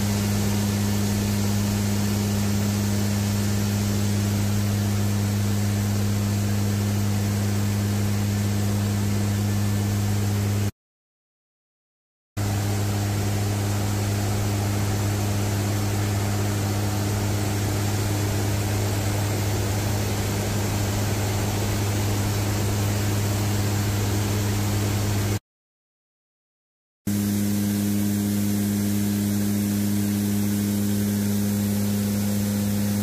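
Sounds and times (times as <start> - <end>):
turboprop aircraft cabin drone: 0.0 - 10.7, 12.4 - 25.4, 27.1 - 33.0.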